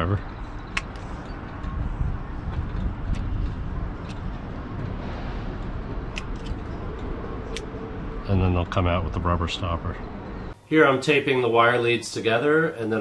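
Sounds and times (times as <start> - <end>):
wind rumble on microphone: 0.0 - 9.3.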